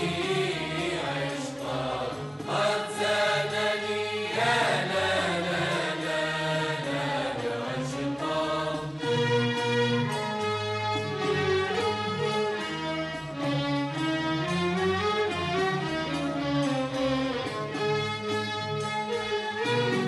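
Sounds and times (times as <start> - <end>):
music with chanted vocal: 0.0 - 10.2.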